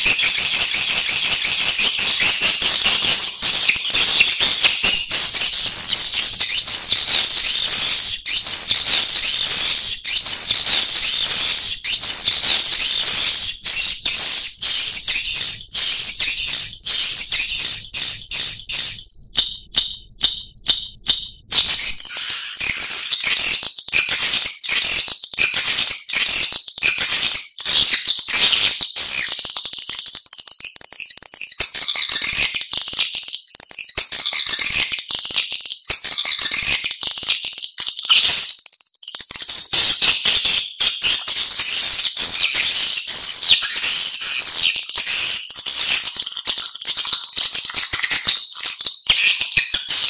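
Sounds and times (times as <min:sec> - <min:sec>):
swiftlet twittering chirps: 0:00.0 - 0:24.4, 0:41.0 - 0:49.8.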